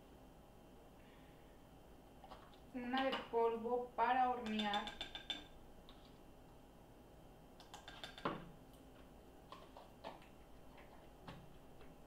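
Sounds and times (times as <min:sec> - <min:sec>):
spoon tapping on mug: 0:04.4 - 0:05.5, 0:07.7 - 0:08.4.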